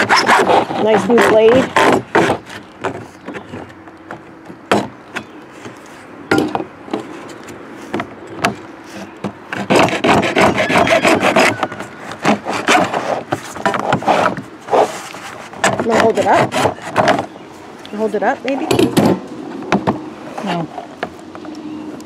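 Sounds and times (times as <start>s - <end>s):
hacksaw sawing through plastic: 0.0s - 3.0s, 9.5s - 17.3s.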